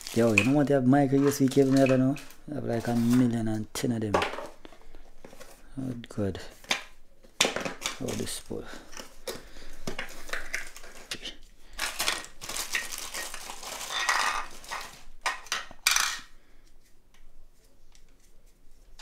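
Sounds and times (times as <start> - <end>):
plastic bag crinkling: 0.0 - 3.7, 7.8 - 15.2.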